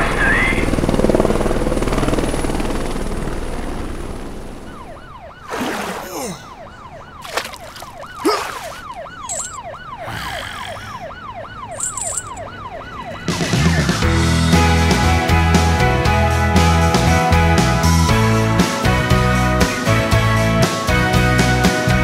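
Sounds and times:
helicopter rotor noise: 0.0 - 4.9, 7.7 - 14.4
police siren wailing: 4.6 - 14.3
music: 13.3 - 22.0.

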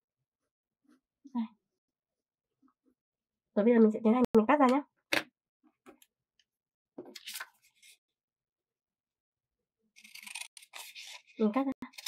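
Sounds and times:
handling scissors and paper: 10.0 - 12.0
scissors snipping paper: 10.0 - 12.0.

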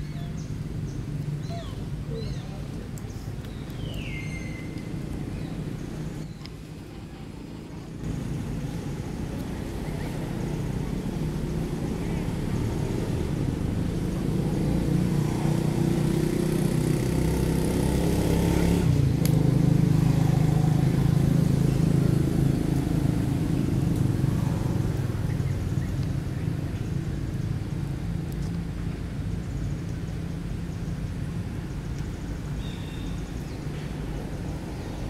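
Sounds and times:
vehicle engine passing by: 8.0 - 29.5.

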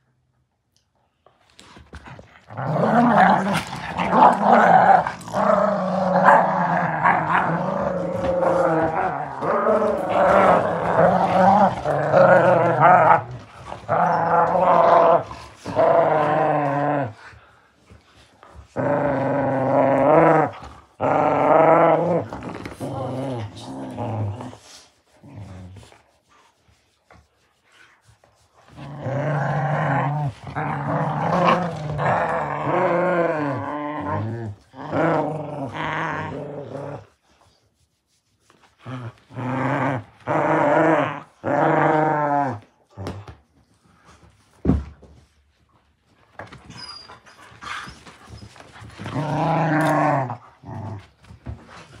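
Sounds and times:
puppies growling: 2.5 - 17.2, 28.8 - 37.1.

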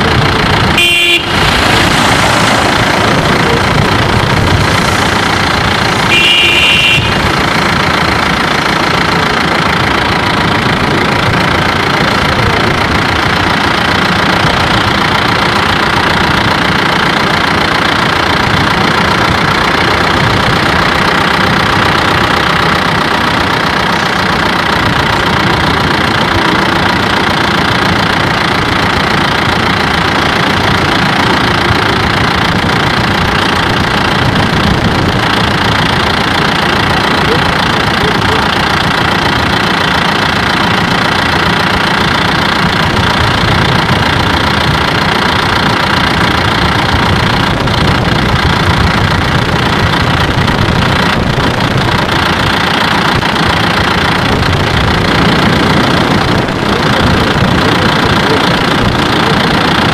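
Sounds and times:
vehicle engine and road noise: 0.0 - 59.9
short horn toot: 0.8 - 1.5, 6.0 - 7.3.

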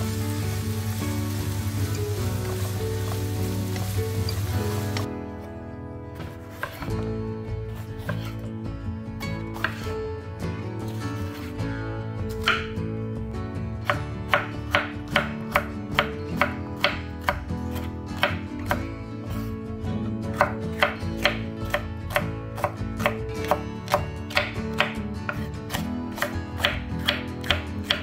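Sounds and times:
knife slicing pepper: 7.8 - 8.4, 20.4 - 28.0.

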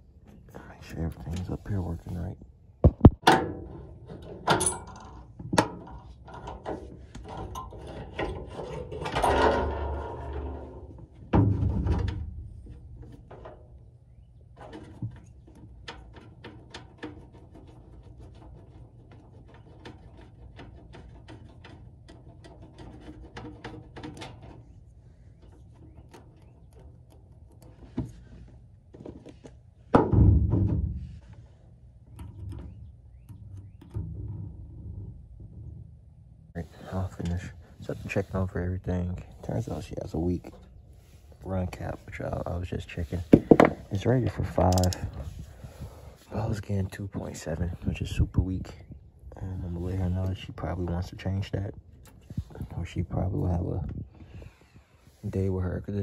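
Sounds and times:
tools knocking and clicking: 2.9 - 9.8, 43.3 - 43.8, 44.5 - 45.2
heavy thuds: 43.2 - 44.0.

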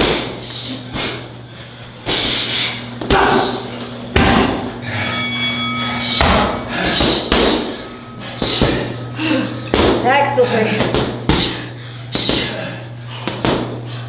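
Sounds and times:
thin ringing tone: 3.4 - 10.7.

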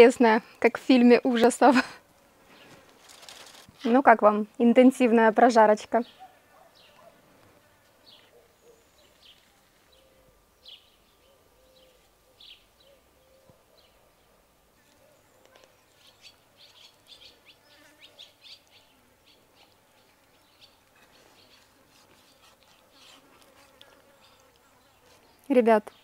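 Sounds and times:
faint bird chirps: 8.0 - 21.7.

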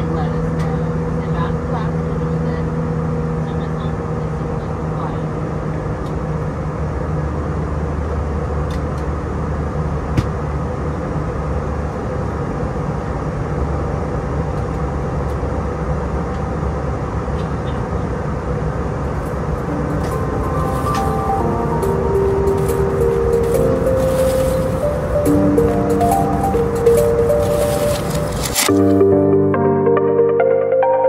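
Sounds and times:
airplane cabin engine drone: 0.0 - 30.0
rushing airflow: 19.1 - 28.7.

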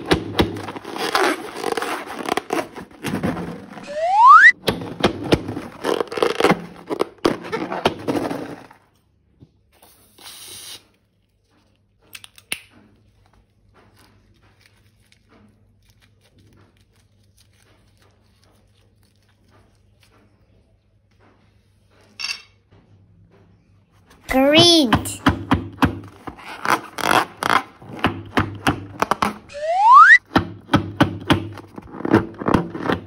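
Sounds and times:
balloon squeak: 0.6 - 4.6, 5.5 - 8.6, 29.0 - 30.2.

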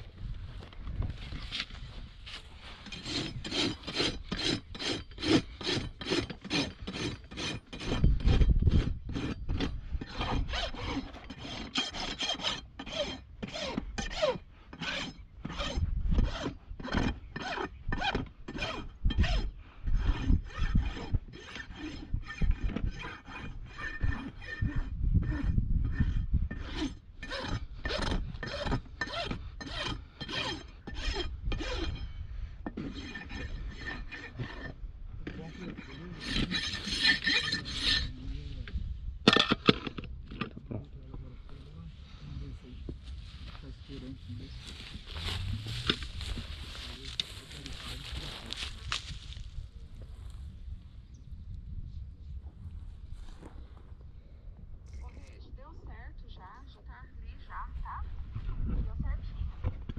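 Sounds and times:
hoof rasp scraping: 0.0 - 40.6, 41.5 - 50.5
low rumbles: 34.6 - 56.5.

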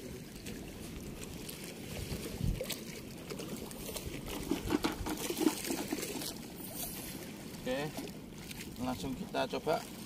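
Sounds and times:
river water trickling: 0.0 - 10.0.

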